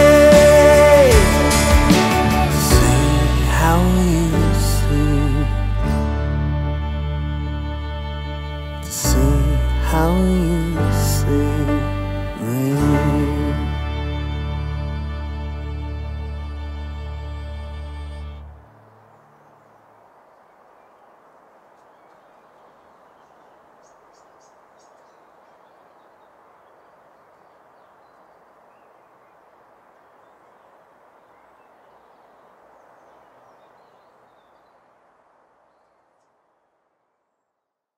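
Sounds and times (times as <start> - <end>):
faint rushing noise: 13.4 - 37.2
faint bird chirps: 19.0 - 36.4.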